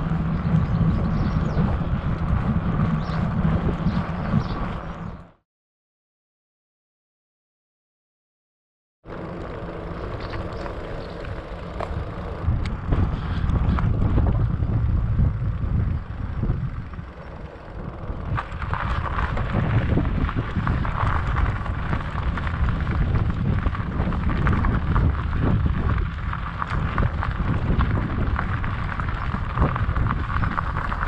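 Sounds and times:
bike tyres rolling: 0.0 - 5.4, 9.1 - 31.0
wind buffeting microphone: 0.0 - 5.4, 10.1 - 31.0
tyres crunching over gravel: 9.1 - 31.0.

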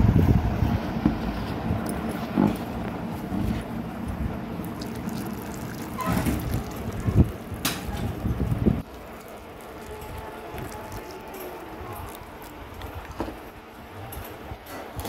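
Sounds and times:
water pouring onto soil: 4.6 - 13.3.

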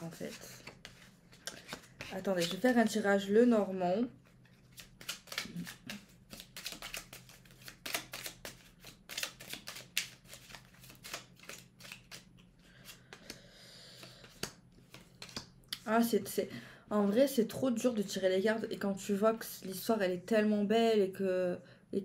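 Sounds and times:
cards being shuffled: 0.1 - 2.8, 4.2 - 13.3, 14.2 - 15.5.

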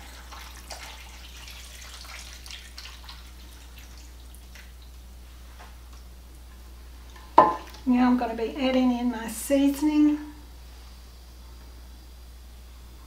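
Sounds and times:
broth splashing and dripping: 0.0 - 5.2
low steady hum: 0.0 - 13.0.

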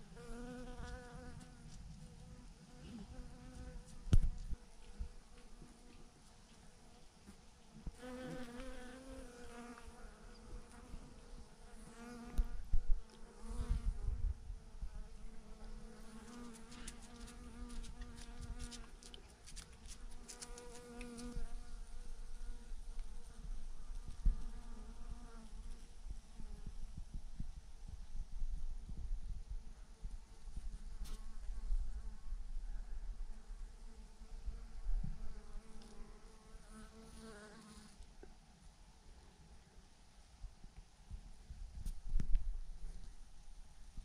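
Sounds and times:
thumps on microphone: 4.1 - 4.6
bee flying past microphone: 7.9 - 26.8.

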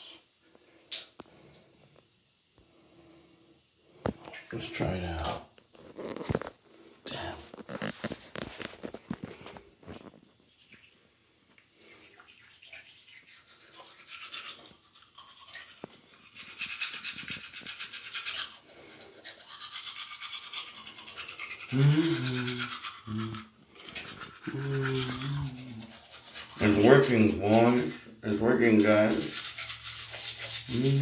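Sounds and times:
toothbrush scrubbing teeth: 7.1 - 31.0.

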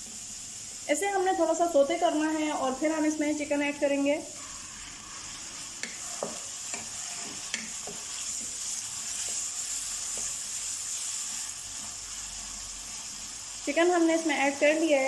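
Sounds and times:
chicken sizzling in hot oil: 0.0 - 15.0
spatula scraping wok: 4.3 - 13.6.

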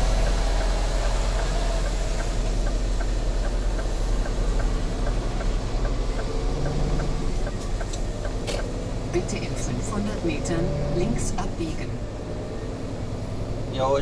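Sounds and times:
diesel engine running low: 0.0 - 14.0
light regular ticking: 0.1 - 10.4.

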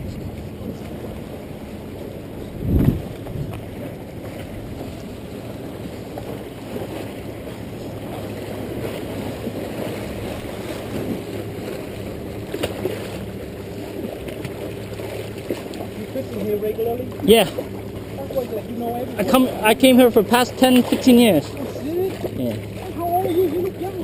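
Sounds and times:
water lapping against rocks: 0.0 - 24.0
wind on microphone: 2.3 - 3.9
fish splashing: 2.8 - 24.0.

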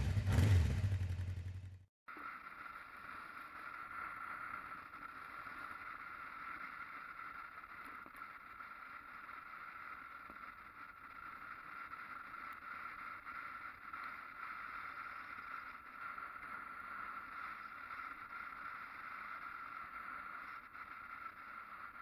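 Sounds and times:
road noise: 0.0 - 1.8.

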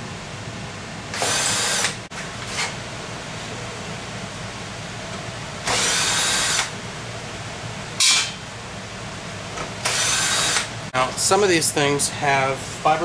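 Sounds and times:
cordless drill whining: 1.2 - 2.0, 5.7 - 6.7, 9.8 - 10.7.

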